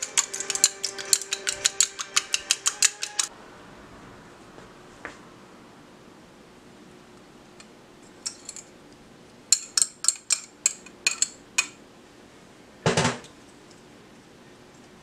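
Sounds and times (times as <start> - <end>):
utensil clinking on mixing dish: 0.0 - 3.3, 9.5 - 11.8
faint steady hum: 0.0 - 15.0.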